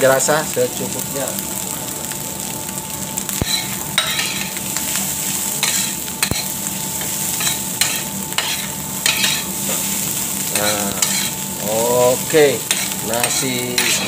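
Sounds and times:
rice sizzling in frying pan: 0.0s - 14.0s
metal spoon scraping pan: 5.6s - 9.9s, 10.6s - 11.4s, 12.6s - 14.0s.

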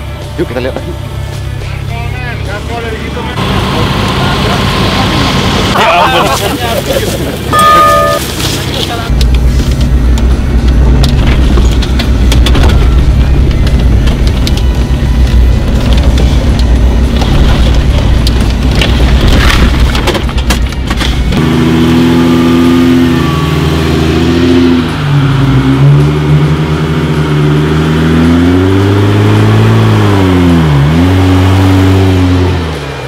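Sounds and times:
vehicle rumble: 0.0s - 33.0s
car engine revving: 21.2s - 33.0s.

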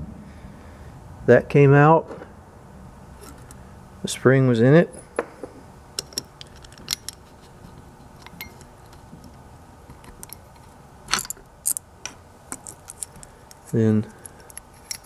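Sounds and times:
small metal parts clinking: 6.0s - 9.0s, 9.9s - 11.8s, 12.5s - 15.0s.

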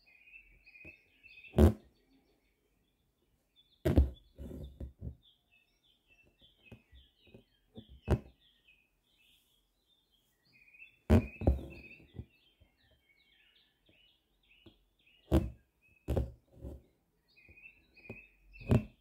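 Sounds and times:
small birds chirping: 0.0s - 19.0s
needle popping through fabric: 1.5s - 1.8s, 3.8s - 5.2s, 8.0s - 8.3s, 11.1s - 12.2s, 15.3s - 16.8s, 18.1s - 19.0s
thread taps and creaks: 3.8s - 5.2s, 6.7s - 8.3s, 11.1s - 12.3s, 14.6s - 16.8s, 18.1s - 19.0s.

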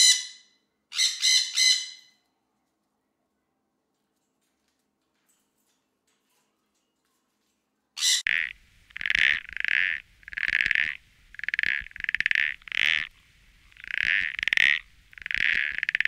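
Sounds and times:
toad trilling: 8.2s - 16.0s.

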